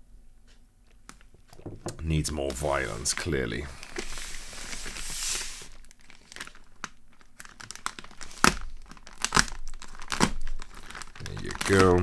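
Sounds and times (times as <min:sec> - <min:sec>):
plastic crinkling: 0:00.8 - 0:12.0
plastic bag tearing: 0:02.7 - 0:12.0.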